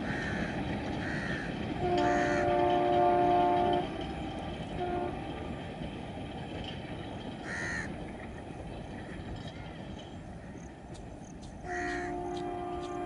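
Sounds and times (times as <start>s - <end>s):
crow cawing: 0.0s - 2.4s, 7.4s - 7.9s, 11.7s - 12.2s
distant train rumble: 0.0s - 13.0s
locomotive horn blasts: 1.8s - 5.4s, 11.8s - 13.0s.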